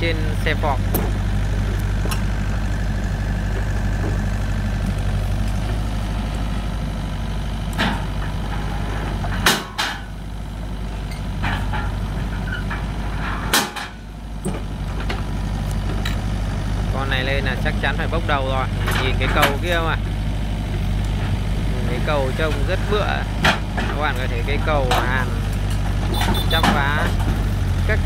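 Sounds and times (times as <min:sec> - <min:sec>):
excavator diesel engine running: 0:00.0 - 0:28.0
metal ramps clanking: 0:07.8 - 0:10.2, 0:11.0 - 0:15.3.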